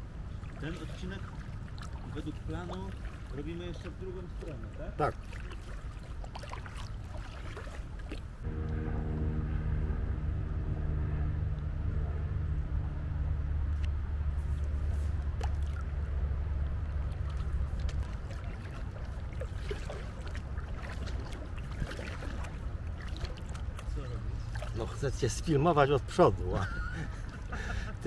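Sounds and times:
paddle splashes and drips: 0.0s - 8.5s, 13.8s - 28.0s
low engine-like drone: 8.3s - 25.1s.

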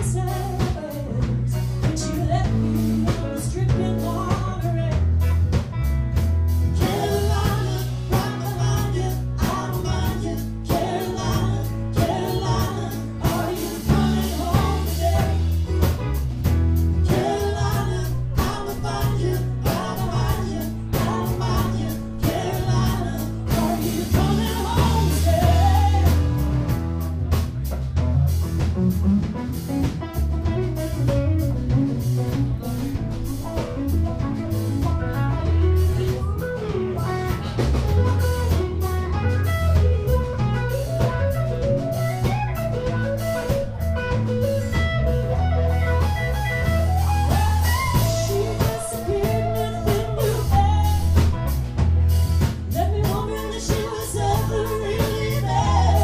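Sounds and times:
electric bass: 0.0s - 56.0s
electric guitar: 0.0s - 56.0s
steady beat: 5.2s - 56.0s
person singing: 6.8s - 15.9s, 17.0s - 26.5s, 46.9s - 51.5s, 52.7s - 56.0s.

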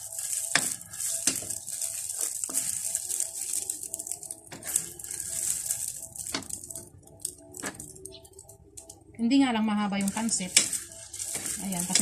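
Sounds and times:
noodles sizzling in a wok: 0.0s - 6.8s, 10.0s - 12.0s.

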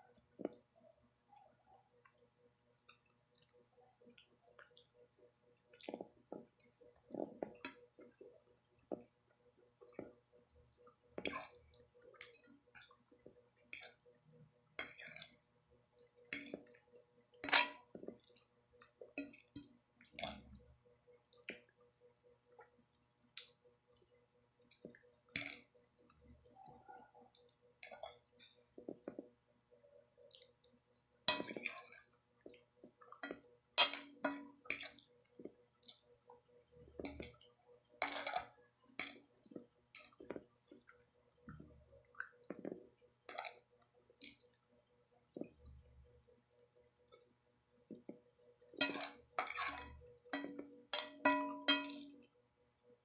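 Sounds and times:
fork clinking against a plate: 48.8s - 52.2s.

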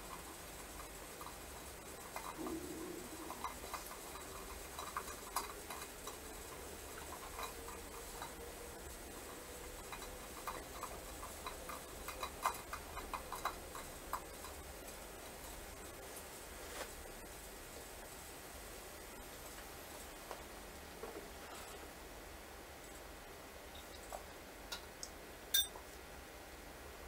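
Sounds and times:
small clicks and ticks: 0.0s - 17.3s
faint held tone: 25.5s - 25.8s.

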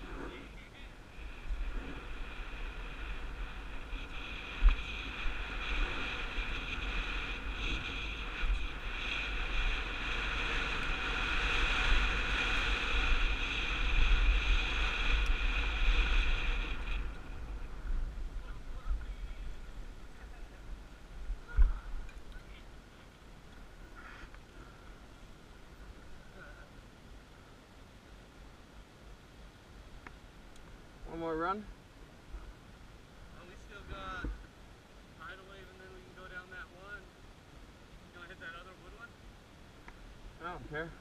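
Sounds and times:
bike tyre and drivetrain whir: 0.0s - 26.5s
wind rumbling on microphone: 0.0s - 27.6s.

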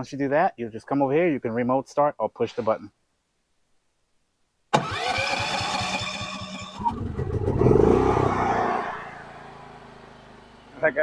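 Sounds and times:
electric starter cranking: 4.7s - 7.7s.

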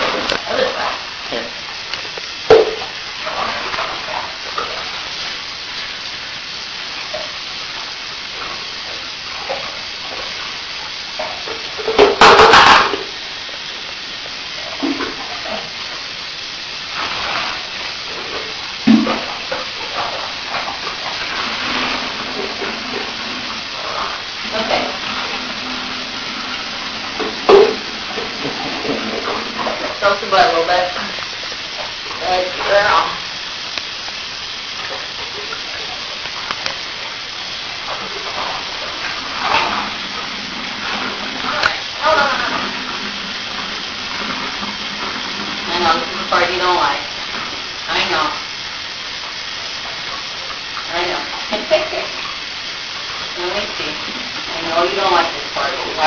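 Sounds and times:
shower water spraying on tiles: 0.0s - 56.0s
knocks and splashes: 2.5s - 4.9s, 11.2s - 13.2s, 18.8s - 33.0s.

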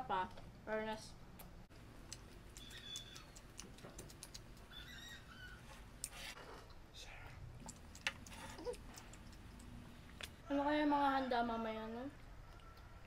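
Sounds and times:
chewing: 1.8s - 6.3s, 7.6s - 10.4s.

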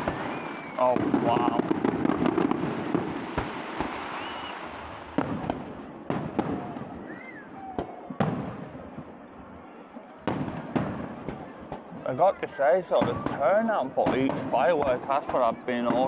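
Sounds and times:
firework bangs with rumble: 0.0s - 9.1s, 10.2s - 12.0s, 13.0s - 16.0s
firework crackling: 0.0s - 9.1s.

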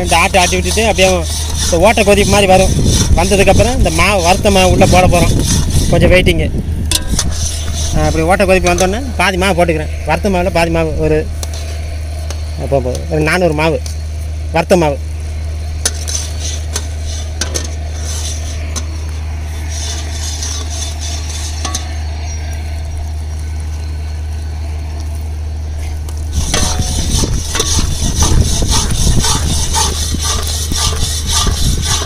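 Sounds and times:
ladle scraping in a pan: 0.0s - 6.1s, 7.0s - 9.2s, 15.8s - 22.2s, 26.3s - 32.0s
steady low hum: 0.0s - 32.0s.

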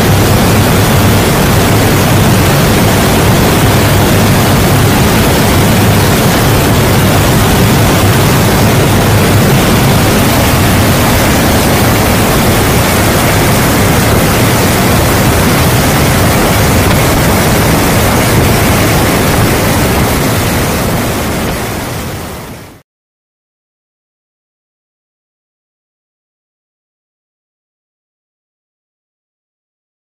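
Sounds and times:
airplane engine and airflow noise: 0.0s - 22.8s
low drone: 0.0s - 22.8s.

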